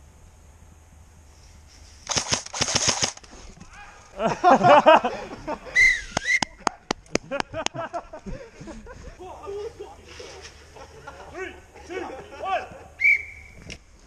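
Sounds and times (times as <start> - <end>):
airsoft gun bursts and shots: 2.0 - 3.3
loud voices: 3.6 - 13.6.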